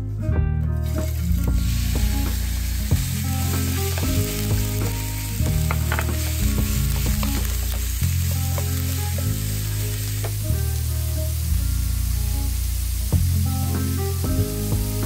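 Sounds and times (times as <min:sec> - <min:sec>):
background music: 0:00.0 - 0:15.0
meat sizzling in a frying pan: 0:00.8 - 0:15.0
wooden spatula stirring: 0:01.0 - 0:10.4.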